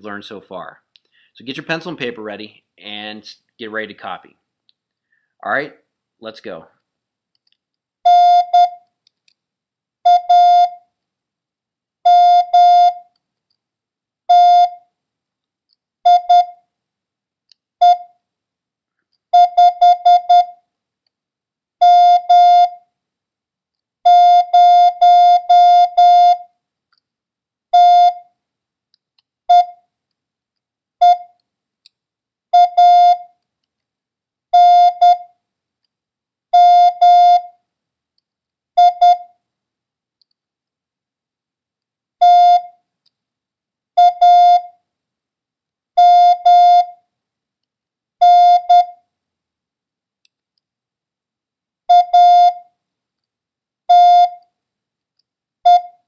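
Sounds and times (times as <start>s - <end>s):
morse code beeps: 19.4s - 20.5s, 27.8s - 28.2s, 29.5s - 29.8s, 31.0s - 31.3s, 32.6s - 33.3s, 34.6s - 35.3s, 36.6s - 37.5s, 38.8s - 39.3s, 48.2s - 49.0s, 53.9s - 54.4s, 55.7s - 56.0s.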